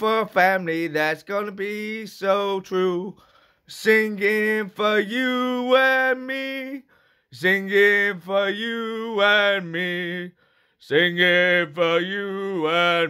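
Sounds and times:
man singing unaccompanied: 0.0 - 13.0
singer breathing: 3.1 - 3.7, 6.8 - 7.4, 10.3 - 10.8.

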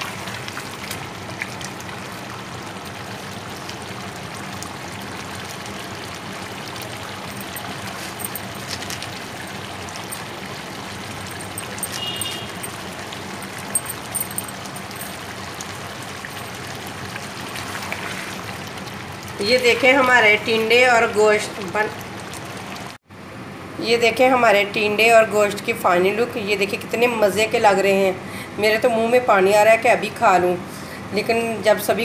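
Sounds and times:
curry simmering in pot: 0.0 - 13.7.

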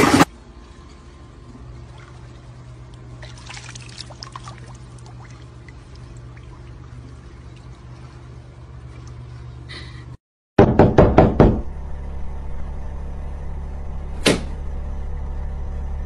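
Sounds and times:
low steady hum: 0.2 - 10.2, 10.8 - 16.0
water sloshing and trickling: 0.3 - 9.7
small water splashes: 1.8 - 9.4.

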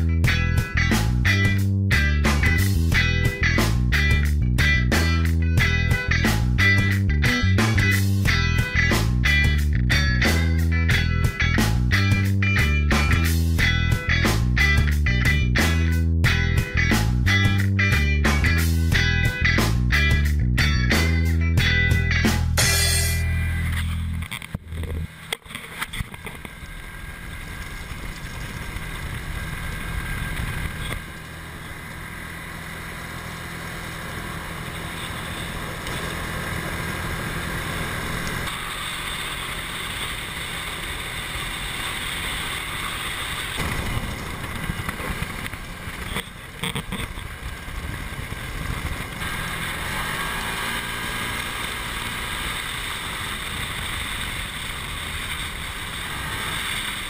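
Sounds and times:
vehicle engine running: 0.0 - 57.0
tyres on gravel: 22.6 - 57.0.

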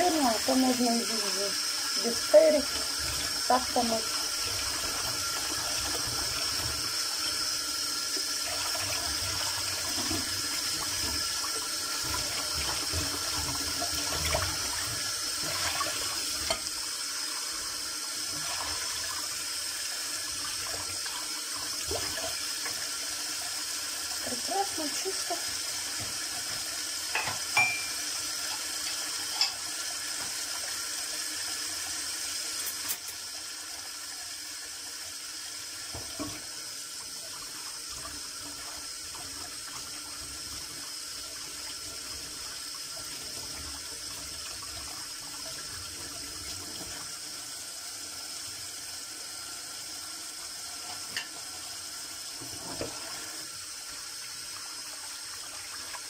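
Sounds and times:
tap running into steel sink: 26.0 - 28.0
dishes knocking: 27.2 - 28.0.

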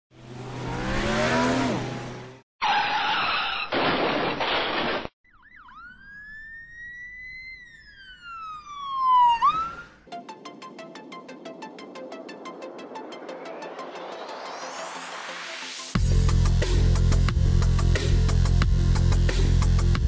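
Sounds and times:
siren wail: 5.2 - 10.1
noisy sweep with falling tones: 5.3 - 15.9.

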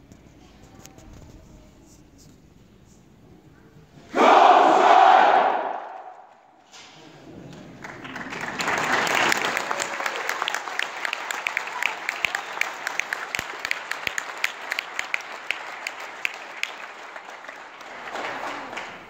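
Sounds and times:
audience applauding: 7.7 - 19.0
sharp hand claps: 7.8 - 19.0.

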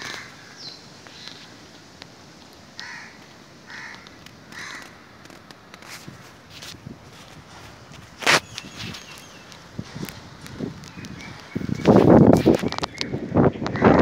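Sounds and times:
crow cawing: 0.0 - 0.7, 2.7 - 5.2.

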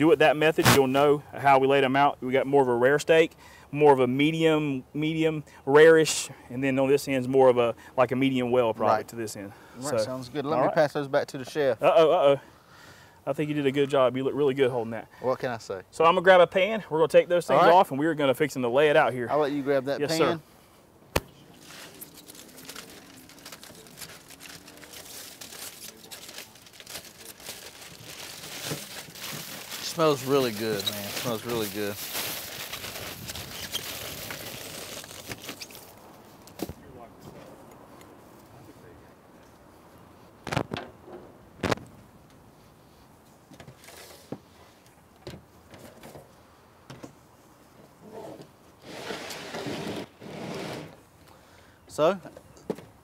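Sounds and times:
rustling: 20.4 - 37.6.

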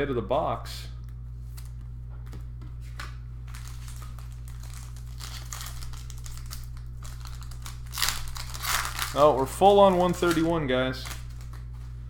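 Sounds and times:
low hum: 0.0 - 12.0
foil wrapper crinkling and tearing: 3.4 - 11.8.

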